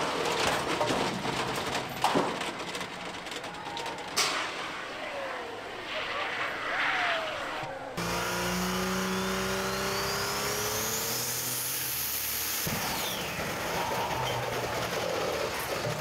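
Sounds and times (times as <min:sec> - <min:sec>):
engine blowing up: 0:07.0 - 0:16.0
diesel engine running at full power: 0:08.0 - 0:16.0.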